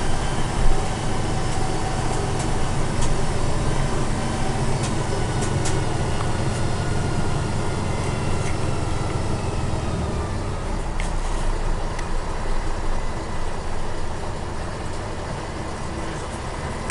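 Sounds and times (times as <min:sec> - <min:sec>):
diesel truck engine running: 0:00.0 - 0:16.9.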